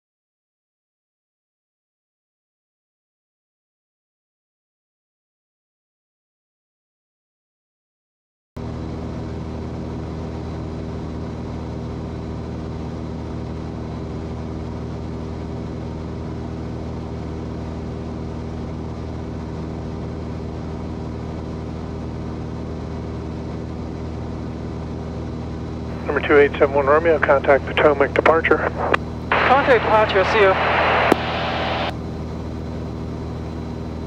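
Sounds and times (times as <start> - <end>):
aircraft engine and propeller drone: 8.6 - 34.0.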